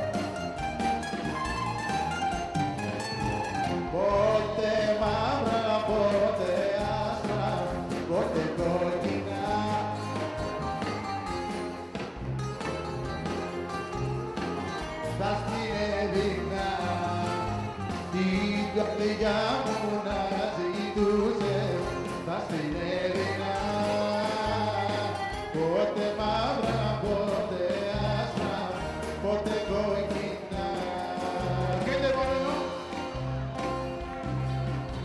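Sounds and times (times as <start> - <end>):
bouzouki: 0.0 - 35.0
drums bass and keyboard: 0.0 - 35.0
person singing: 3.4 - 10.9, 14.9 - 34.2.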